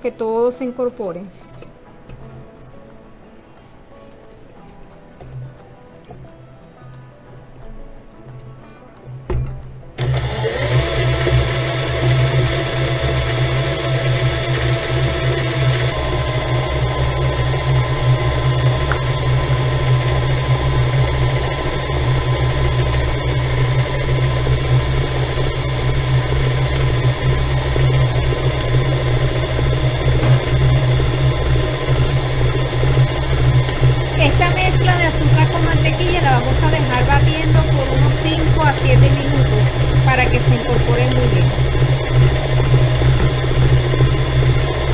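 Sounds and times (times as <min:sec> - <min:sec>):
stand mixer running: 0:10.0 - 0:44.9.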